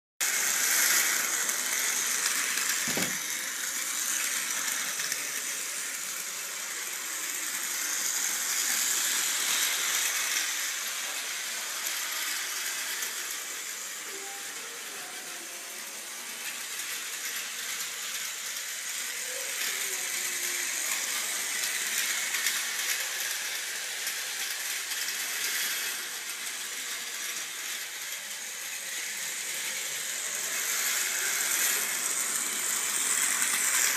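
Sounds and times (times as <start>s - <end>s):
toy train motor whirring: 0.2s - 33.9s
knock: 2.9s - 3.2s.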